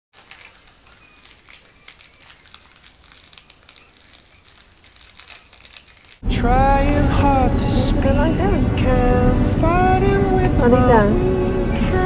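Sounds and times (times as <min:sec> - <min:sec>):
puppy chewing a fabric toy: 0:00.2 - 0:06.2.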